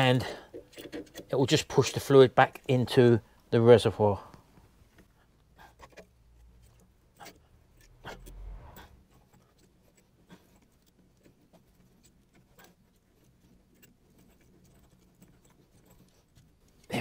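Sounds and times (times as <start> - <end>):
low rumble: 7.9 - 9.0.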